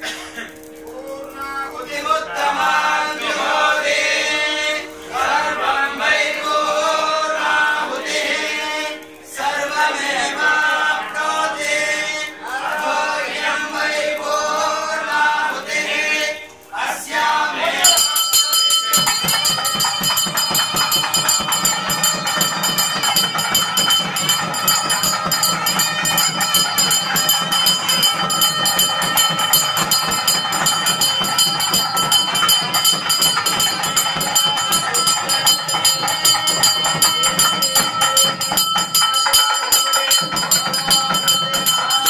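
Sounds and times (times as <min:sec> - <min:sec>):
priests chanting together: 0:00.9 - 0:42.0
bells ringing: 0:17.8 - 0:42.0.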